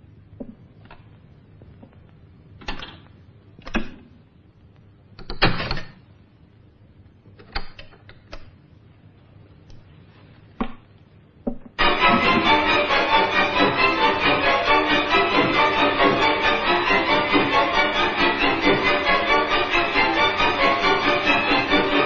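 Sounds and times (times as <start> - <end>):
loud orchestral music: 11.8 - 22.0.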